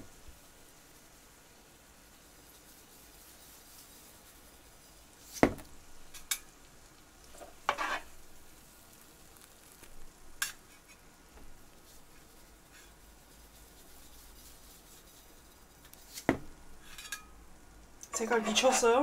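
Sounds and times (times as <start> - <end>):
faint frying sizzle: 0.0 - 19.0
utensil scraping pan: 7.3 - 8.2, 11.9 - 17.4, 18.2 - 19.0.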